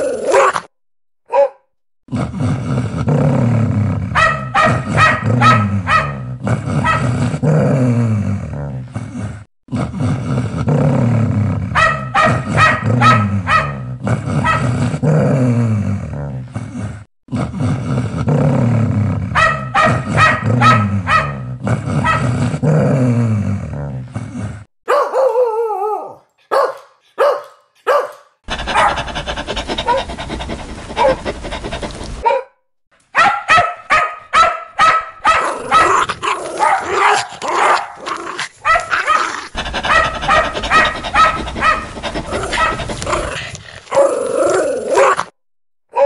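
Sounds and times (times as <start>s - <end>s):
dog barking sharply: 1.3s - 1.6s, 4.2s - 6.2s, 11.8s - 13.8s, 19.4s - 21.4s, 24.9s - 25.4s, 26.5s - 29.1s, 32.2s - 32.5s, 33.1s - 36.0s, 36.6s - 38.0s, 38.6s - 39.2s, 39.8s - 41.9s
dog growling: 2.1s - 19.4s, 20.0s - 24.7s, 28.5s - 32.2s, 35.4s - 45.4s.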